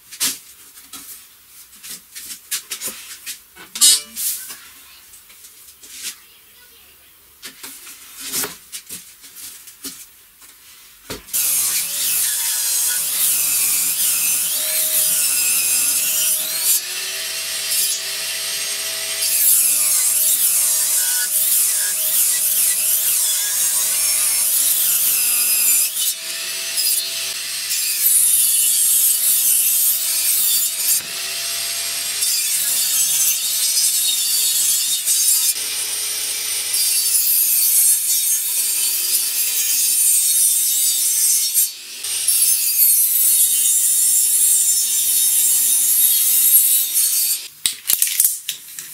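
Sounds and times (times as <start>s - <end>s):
table saw ripping wood: 11.3s - 39.8s.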